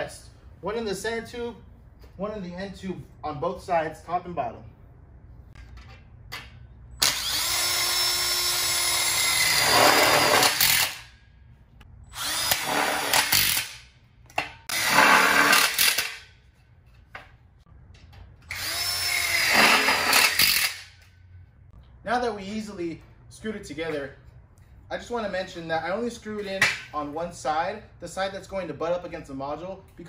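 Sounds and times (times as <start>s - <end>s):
impact drill driving screws: 7.0s - 11.1s, 12.2s - 13.8s, 14.7s - 16.2s, 18.5s - 20.9s.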